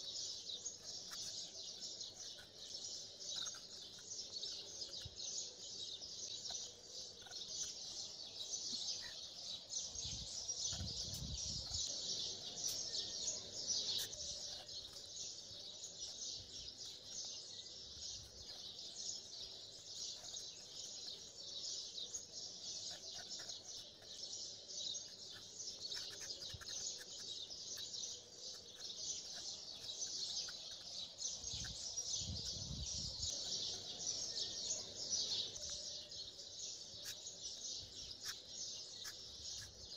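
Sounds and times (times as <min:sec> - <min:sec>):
small birds chirping: 0:00.0 - 0:39.9.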